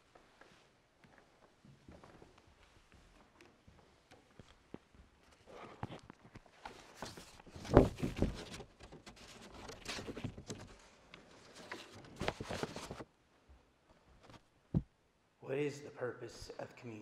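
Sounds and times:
papers rustling: 0:05.4 - 0:13.1
microphone knocks and bumps: 0:07.6 - 0:08.6, 0:14.7 - 0:14.9.

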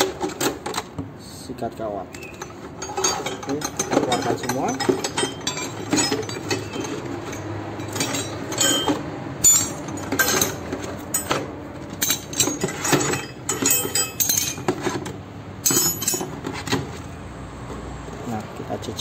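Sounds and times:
metal tools clattering on concrete: 0:02.1 - 0:16.9.

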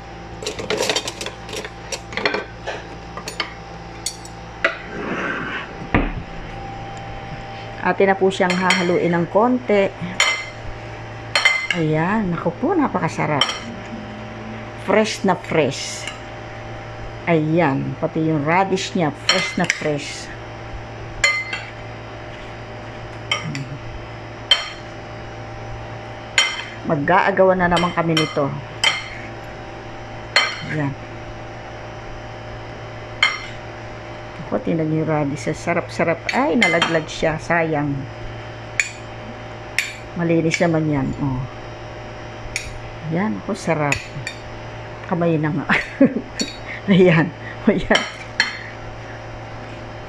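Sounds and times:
faint steady hum: 0:00.0 - 0:50.0
kitchen utensils and dishes clinking: 0:00.4 - 0:04.8.

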